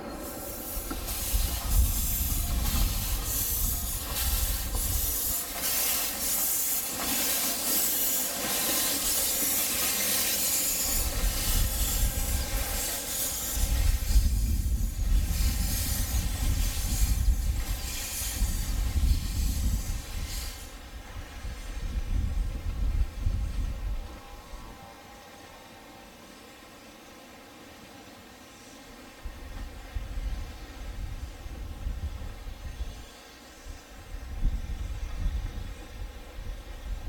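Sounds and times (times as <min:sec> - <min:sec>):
steam locomotive blowing off steam: 0:00.0 - 0:37.0.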